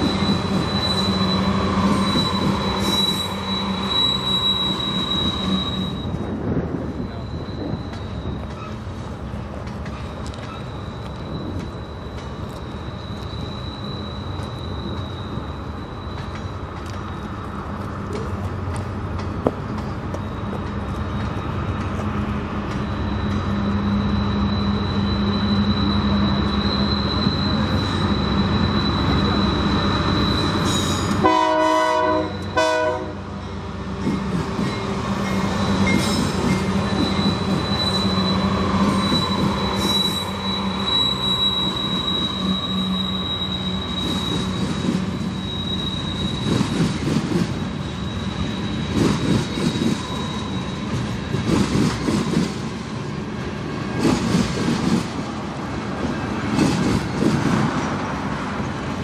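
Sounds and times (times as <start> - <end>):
high wheel squeal: 0.0 - 9.3, 9.9 - 17.7, 19.8 - 53.0
freight train rolling past: 0.0 - 59.0
locomotive air horn: 31.1 - 33.2.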